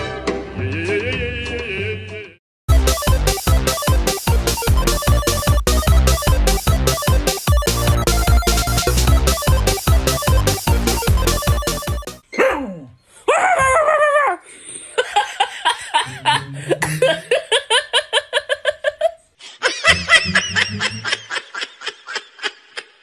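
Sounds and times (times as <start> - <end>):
person laughing hard: 13.4 - 23.0.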